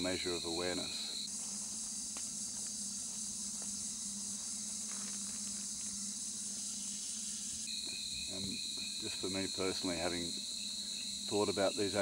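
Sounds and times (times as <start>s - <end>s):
high-pitched insect chorus: 0.0s - 12.0s.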